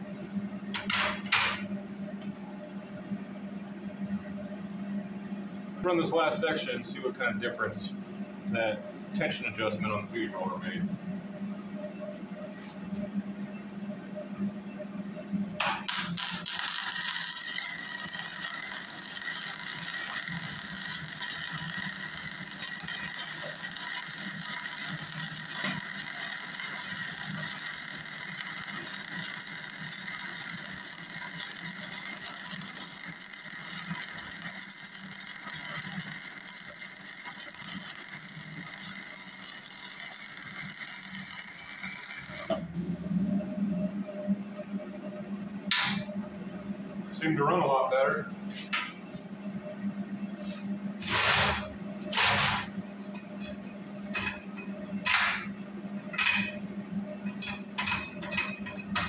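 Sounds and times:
welding arc crackle: 15.6s - 42.7s, 51.0s - 52.7s
welding arc pops: 15.6s - 42.7s, 51.0s - 52.7s.

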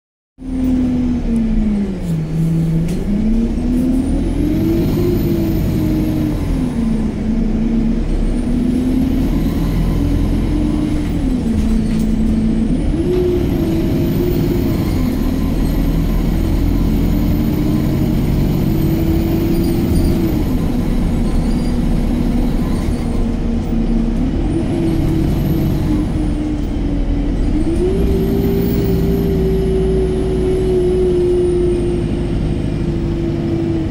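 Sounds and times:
bus engine and transmission whine: 0.4s - 33.9s
bus low rumble: 0.4s - 33.9s.

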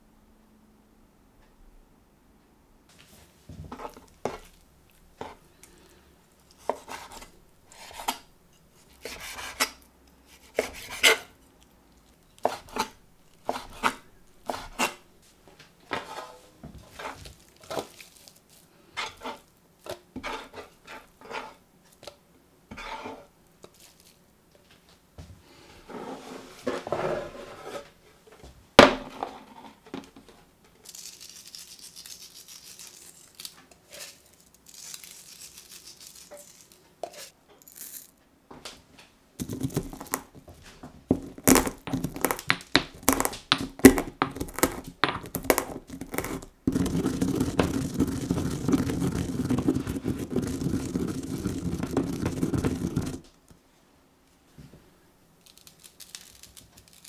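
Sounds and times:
pestle grinding in stone mortar: 6.5s - 8.2s, 8.9s - 9.7s, 10.3s - 11.4s, 12.4s - 15.0s, 39.4s - 40.4s, 41.1s - 53.3s
chopping board set down: 28.8s - 29.3s
pestle cracking peppercorns: 30.8s - 38.2s, 39.4s - 40.4s, 41.1s - 53.3s, 55.4s - 57.0s.

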